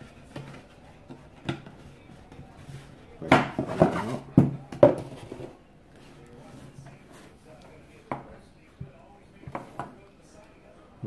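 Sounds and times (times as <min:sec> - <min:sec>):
knocks and scraping: 0:00.0 - 0:07.4.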